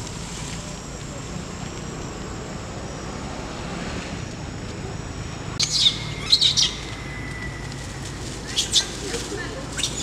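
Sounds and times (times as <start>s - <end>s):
bird chirping: 5.6s - 7.7s.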